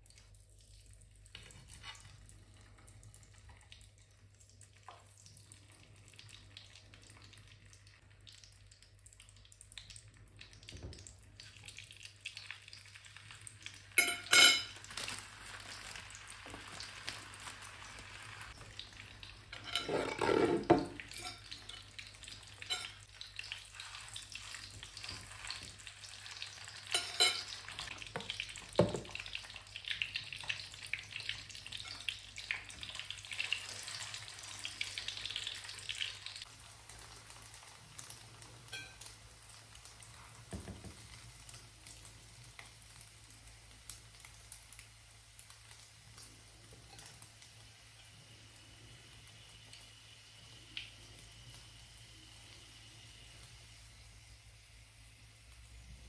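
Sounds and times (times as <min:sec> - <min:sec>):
sausages sizzling in oil: 0:00.0 - 0:56.0
rattling scrape: 0:19.6 - 0:20.8
fork clinking against pan: 0:22.6 - 0:23.0, 0:26.9 - 0:27.6.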